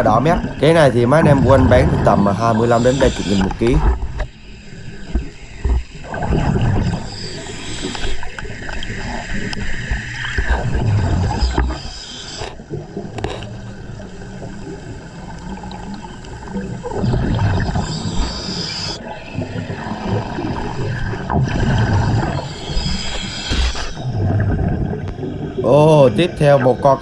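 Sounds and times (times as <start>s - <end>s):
exhaled air bubbling: 0.0s - 4.4s, 5.0s - 27.0s
diver breathing through regulator: 22.2s - 24.2s.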